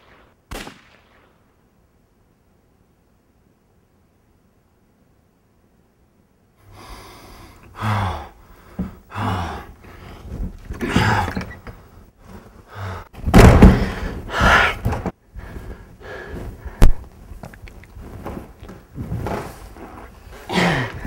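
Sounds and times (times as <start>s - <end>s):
man gasping breaths: 6.6s - 11.3s, 12.6s - 17.0s.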